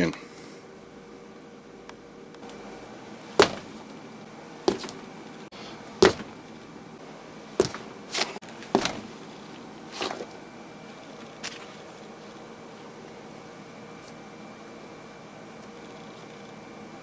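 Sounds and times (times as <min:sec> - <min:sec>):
fist thudding stress toy on table: 0:03.4 - 0:03.8, 0:06.0 - 0:06.4.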